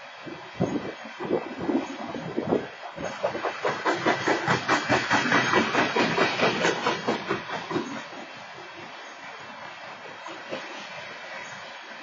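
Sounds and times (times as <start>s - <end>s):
hiss: 0.0s - 12.0s
train wheels clattering over rails: 1.4s - 8.5s, 10.2s - 11.1s.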